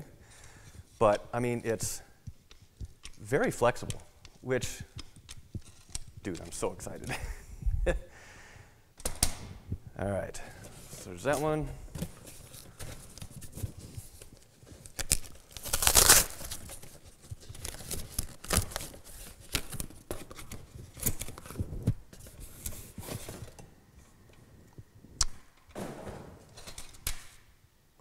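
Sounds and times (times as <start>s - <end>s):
tape tearing: 12.2s - 21.6s
cardboard scraping and rustling: 20.2s - 23.6s.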